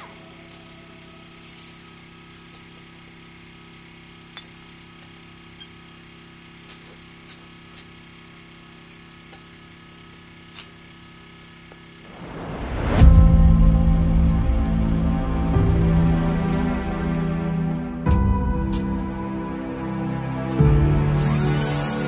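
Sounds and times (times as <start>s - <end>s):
loud rushing noise: 12.1s - 19.8s.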